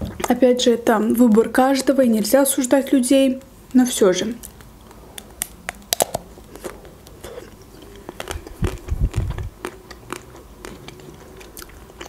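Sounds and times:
chocolate shell crackling: 4.4 - 12.0
chewing close to microphone: 5.2 - 12.0.

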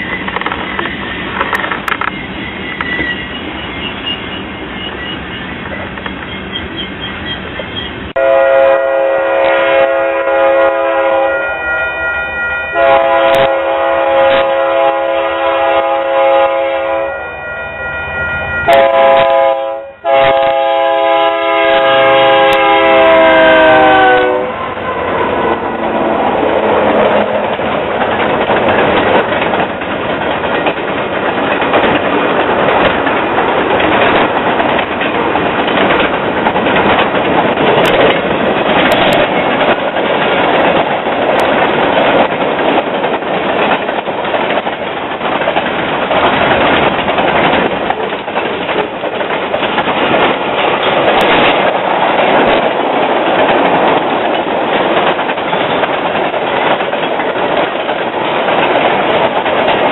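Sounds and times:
wheels clacking over rail joints: 0.0 - 8.1, 20.1 - 59.9
locomotive air horn: 8.2 - 27.4
freight cars rumbling: 22.0 - 59.9.

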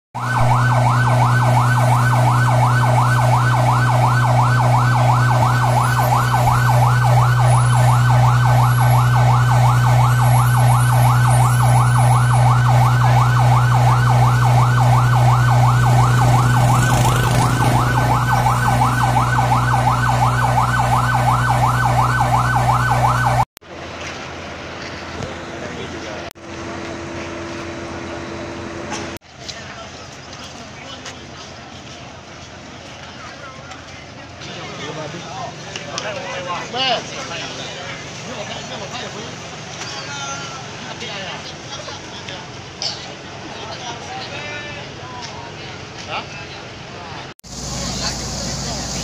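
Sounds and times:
siren yelping: 0.2 - 23.5
low hum: 0.4 - 23.4.

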